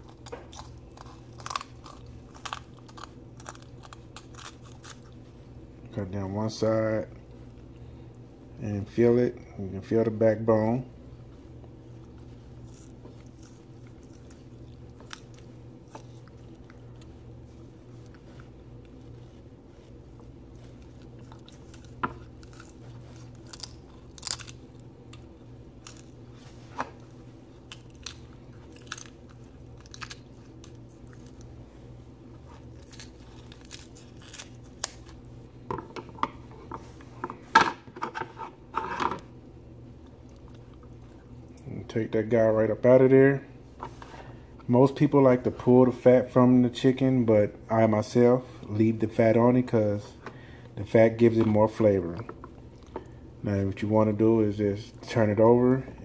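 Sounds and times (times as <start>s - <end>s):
shears crunching through bone: 0.0s - 5.2s, 12.0s - 31.5s, 32.4s - 35.3s
steady low hum: 0.0s - 56.0s.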